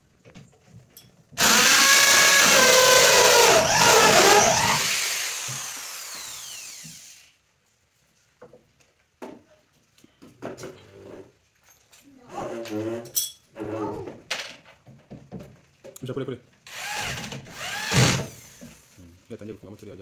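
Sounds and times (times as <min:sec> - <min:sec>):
power drill whining: 0:01.4 - 0:07.3, 0:16.7 - 0:18.9.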